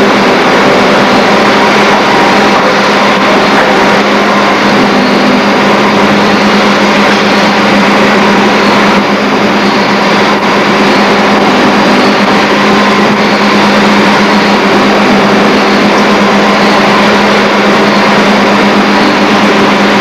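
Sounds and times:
constant hum: 0.0s - 20.0s
machinery din: 0.0s - 20.0s.

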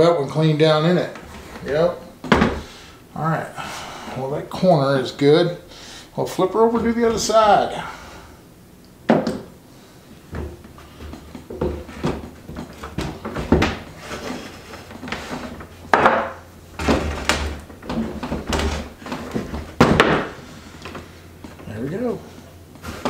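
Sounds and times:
wooden knocks and clunks: 1.1s - 2.7s, 9.1s - 9.5s, 10.3s - 21.7s.

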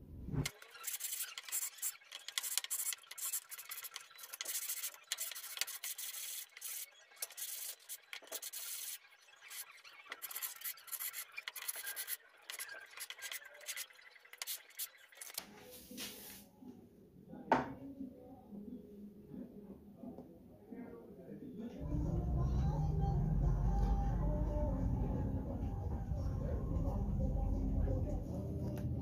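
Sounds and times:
wood sanding strokes on sandpaper: 0.8s - 9.6s.

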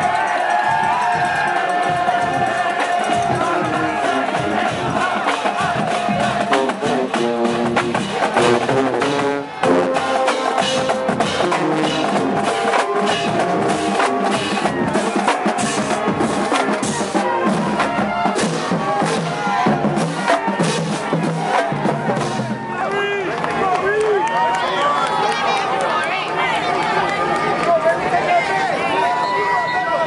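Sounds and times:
steady drum beat: 0.0s - 22.9s
marching band brass tune: 0.0s - 23.5s.

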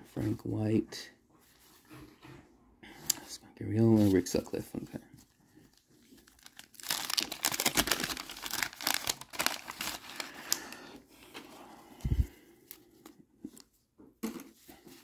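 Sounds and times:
wax paper wrapper crinkling: 5.6s - 10.8s.

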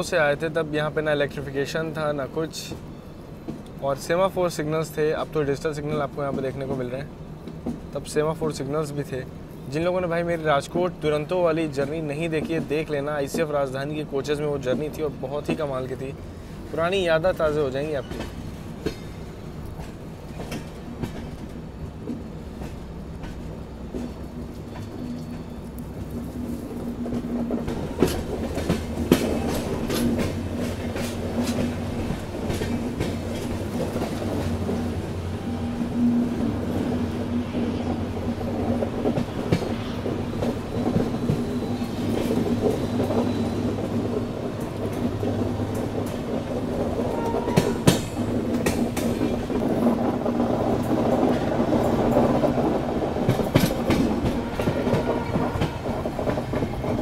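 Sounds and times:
train rumble and hum: 0.0s - 57.0s
wheels clacking over rail joints: 17.2s - 57.0s.

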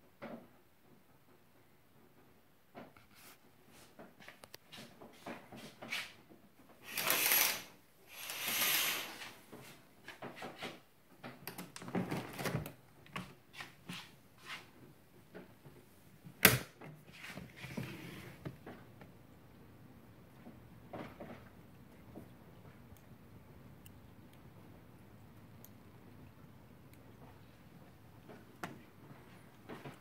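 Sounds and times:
small clicks and knocks: 10.1s - 13.4s.

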